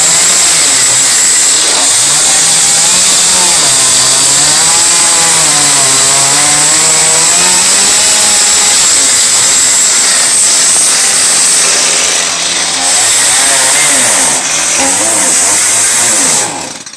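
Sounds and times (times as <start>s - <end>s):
chainsaw cutting wood: 0.0s - 16.9s.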